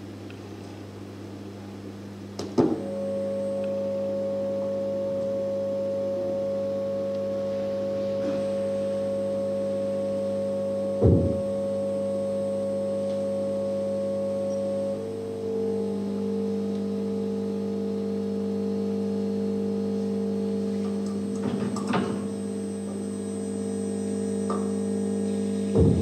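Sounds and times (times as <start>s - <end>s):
drone of held tones: 1.7s - 26.0s
sharp knock: 11.0s - 11.4s.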